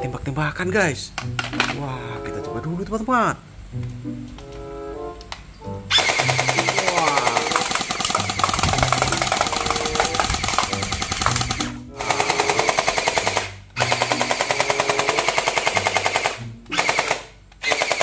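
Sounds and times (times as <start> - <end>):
gel-ball blaster firing full auto: 5.9 - 18.0.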